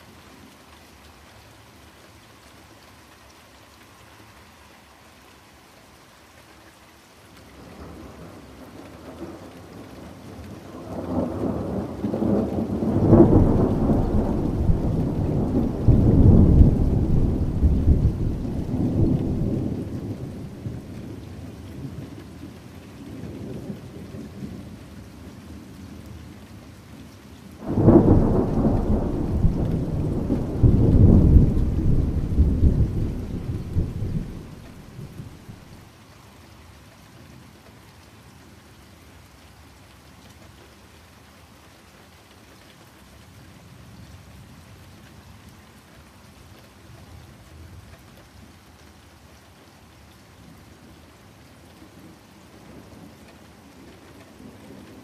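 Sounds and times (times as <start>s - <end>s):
steady rain: 0.0s - 55.0s
thunder rolling: 11.1s - 20.5s, 27.6s - 35.6s.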